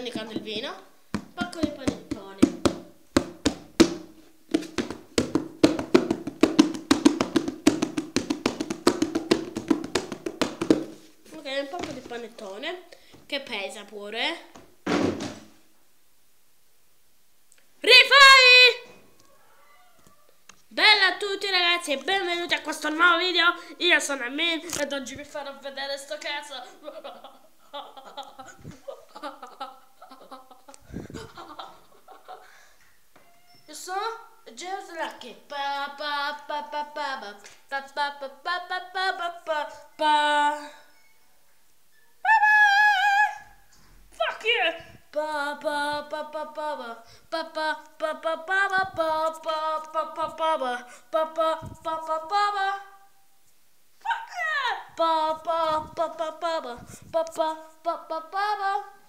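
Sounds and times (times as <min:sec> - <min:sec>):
rapid sharp tapping: 0:01.1 - 0:11.1
young person giggling: 0:26.6 - 0:32.7.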